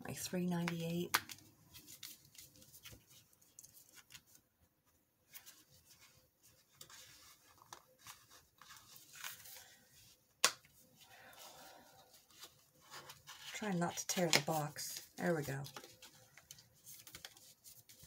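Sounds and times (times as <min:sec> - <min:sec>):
paper rustling and scraping: 0:05.2 - 0:10.1, 0:11.2 - 0:18.0.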